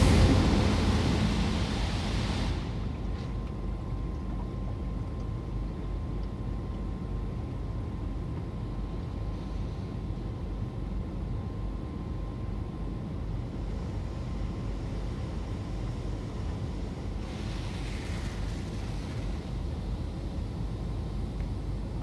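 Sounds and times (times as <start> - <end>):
car wash water jets spraying: 0.0 - 3.2, 14.6 - 20.9
steady low rumble: 0.0 - 18.0.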